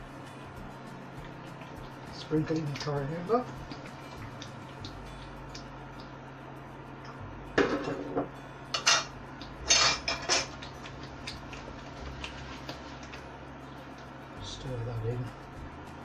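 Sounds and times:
bowl and utensils clinking: 7.6s - 11.4s.

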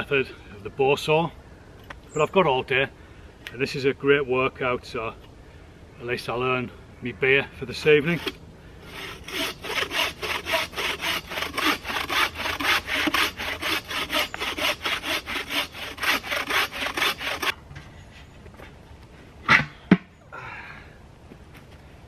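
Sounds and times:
bow saw cutting log: 8.0s - 17.6s.

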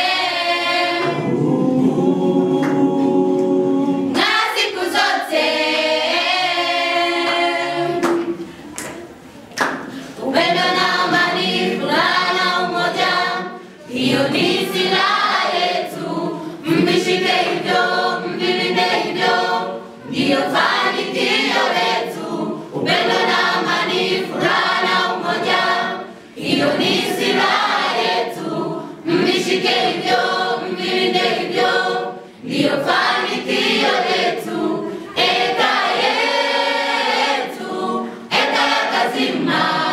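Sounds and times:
choir singing unaccompanied: 0.0s - 8.5s, 9.9s - 39.9s.

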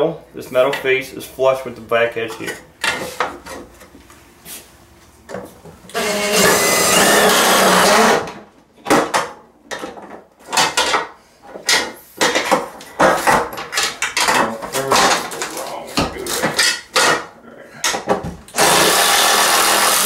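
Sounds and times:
cordless drill driving screws: 5.9s - 8.3s, 18.5s - 20.0s.

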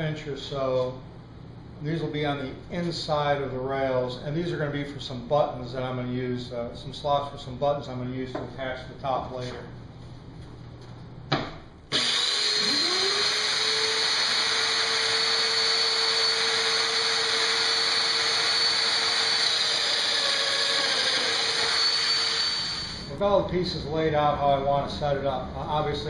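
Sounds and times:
dust extractor rushing: 11.9s - 23.1s
joiner motor whining: 11.9s - 23.1s.

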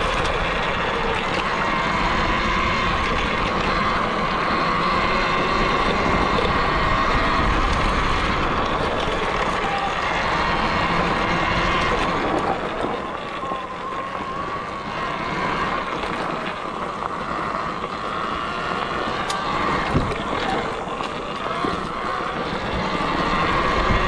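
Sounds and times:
electric motor whine: 0.0s - 24.0s
tyre and ground noise: 0.0s - 24.0s
wind buffeting microphone: 0.0s - 24.0s.

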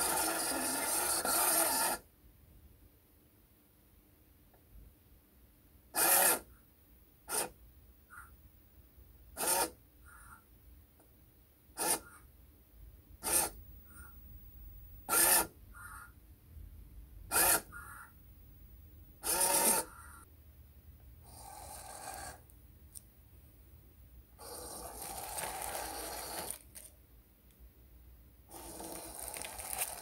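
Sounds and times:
faint blips: 13.5s - 15.1s
servo whining in bursts: 19.2s - 20.2s.

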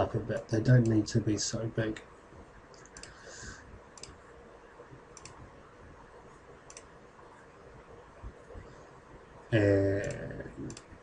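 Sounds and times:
low hiss: 0.0s - 11.0s
computer mouse clicks: 2.7s - 3.2s, 3.9s - 4.2s, 5.1s - 5.4s, 6.6s - 7.0s, 10.0s - 11.0s.

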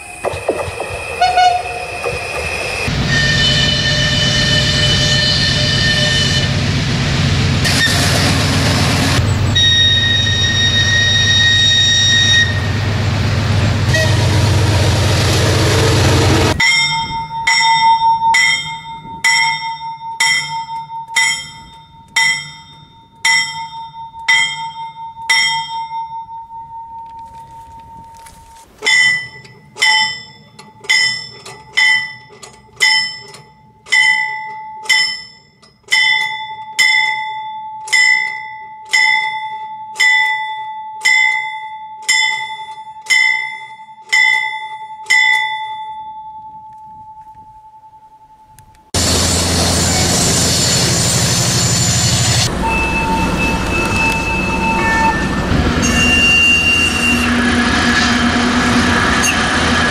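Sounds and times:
freight train running past: 0.0s - 17.5s, 49.0s - 59.9s
locomotive warning bell ringing: 16.6s - 48.8s, 52.1s - 57.2s.

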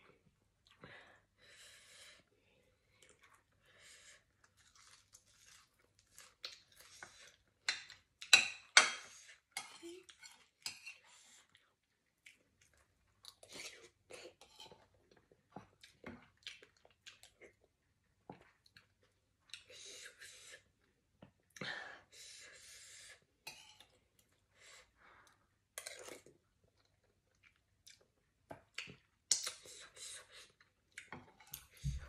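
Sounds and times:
chewing salad: 4.2s - 21.6s, 25.3s - 32.0s.

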